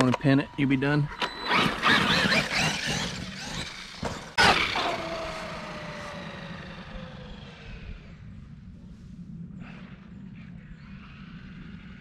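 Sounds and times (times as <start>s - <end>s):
electric motor whine: 0.6s - 8.3s.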